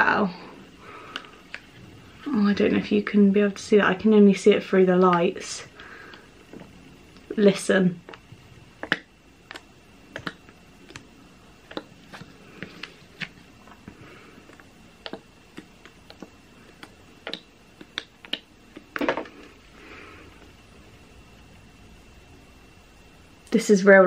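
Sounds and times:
squeeze tube clicking and squelching: 8.8s - 13.9s, 14.5s - 19.0s.

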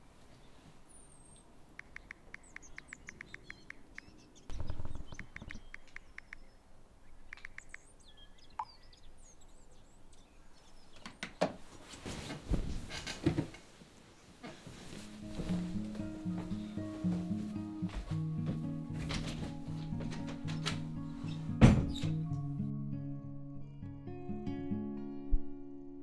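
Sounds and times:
small birds chirping: 0.3s - 11.8s, 20.3s - 22.2s
smartphone keyboard clicks: 1.8s - 6.5s, 7.3s - 7.8s
bedding rustling and knocking: 11.4s - 22.2s.

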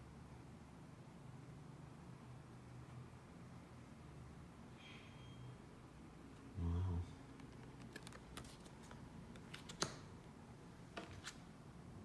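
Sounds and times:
cards clicking and tapping: 7.3s - 10.2s
card snap: 9.4s - 10.1s.

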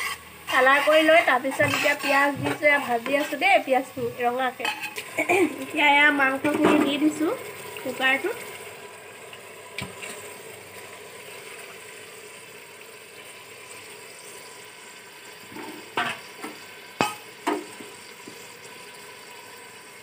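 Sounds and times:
meat sizzling in oil: 0.0s - 20.0s
knocks against a pot: 15.5s - 18.4s.

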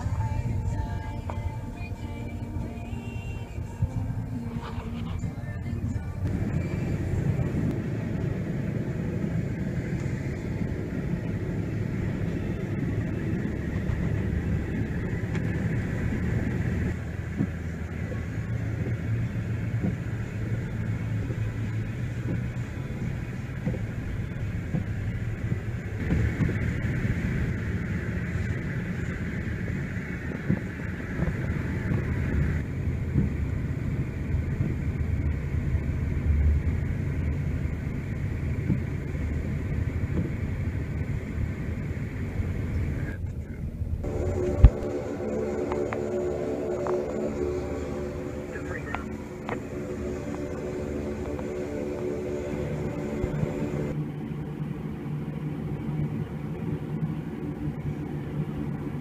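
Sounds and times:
vehicle engine droning: 0.0s - 59.0s.

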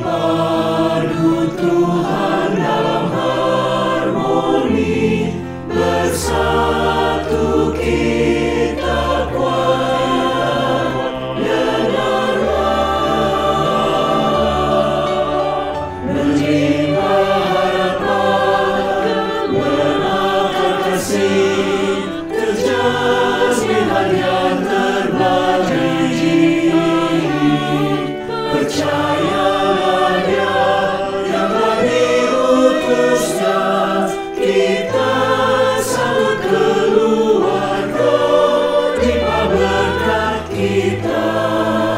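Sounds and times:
choir singing a hymn: 0.0s - 41.9s
piano accompaniment: 0.0s - 41.9s.

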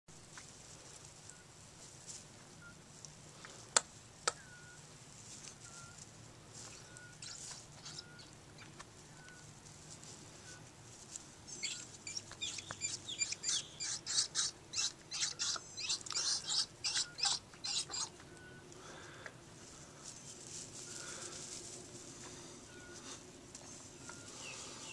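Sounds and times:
peafowl soft calls: 2.2s - 24.9s
crinkling and rustling: 8.6s - 12.4s, 19.1s - 24.4s.

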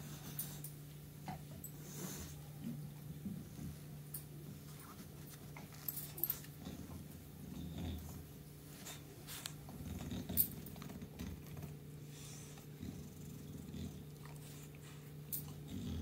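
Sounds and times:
dog grunting and breathing: 5.7s - 16.0s.

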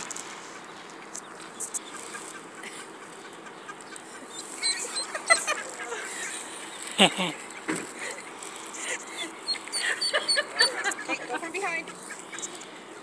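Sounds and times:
faint background noise: 0.0s - 13.0s
ducks calling: 0.7s - 12.9s.

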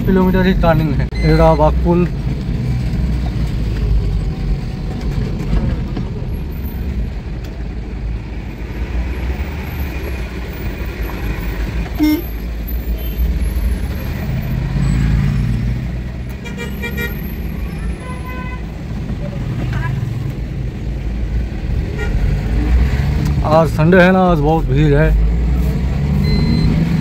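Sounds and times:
road noise: 0.0s - 27.0s
truck engine rumble: 0.0s - 27.0s
truck horn toot: 12.0s - 12.4s, 16.4s - 18.7s, 21.9s - 22.3s.

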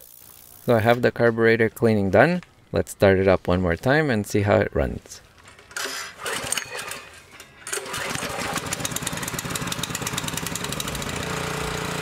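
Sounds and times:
small engine starting and running: 5.7s - 12.0s.

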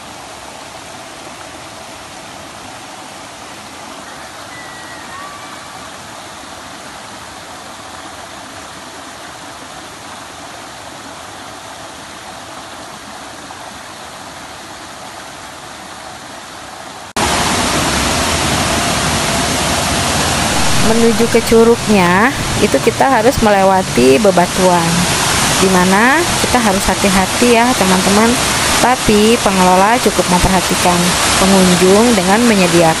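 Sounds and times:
waterfall roaring: 0.0s - 9.6s, 16.7s - 33.0s.

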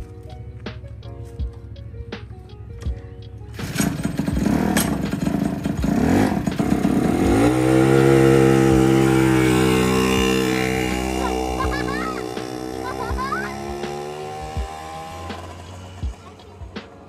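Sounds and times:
car engine revving: 3.6s - 17.0s.

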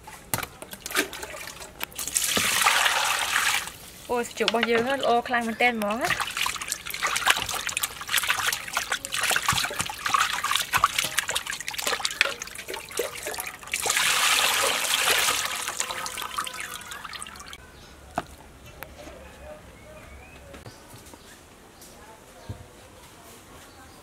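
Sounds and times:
water splashing in a steel bowl: 0.7s - 3.9s, 5.8s - 17.6s
water trickling into a bowl: 6.0s - 17.6s.

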